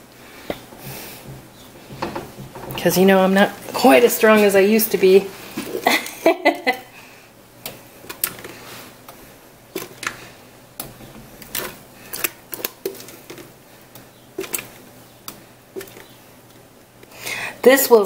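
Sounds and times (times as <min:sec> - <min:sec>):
spatula tapping metal saucepan: 0:00.8 - 0:02.8.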